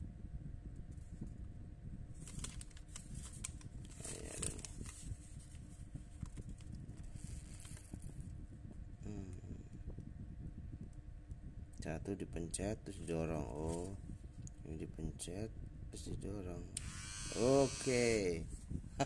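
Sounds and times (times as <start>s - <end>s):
paper rustling and crinkling: 2.2s - 8.0s, 13.0s - 14.0s.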